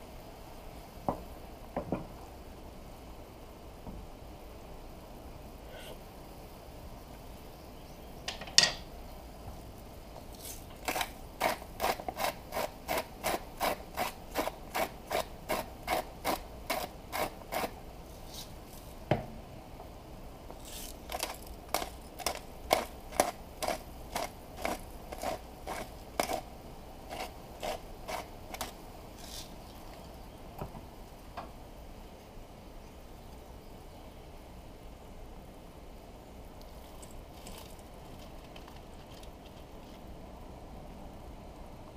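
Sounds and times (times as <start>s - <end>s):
salt and pepper grinders crunching: 10.3s - 17.8s, 20.6s - 26.5s, 27.1s - 29.6s.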